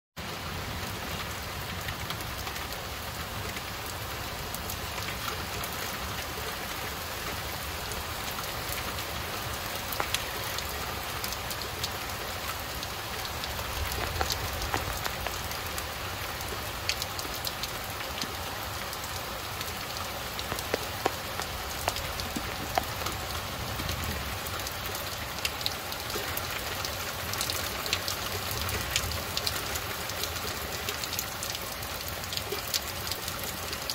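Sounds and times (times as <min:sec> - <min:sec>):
steady rain falling: 0:00.2 - 0:33.9
drops ticking nearby: 0:07.9 - 0:33.9.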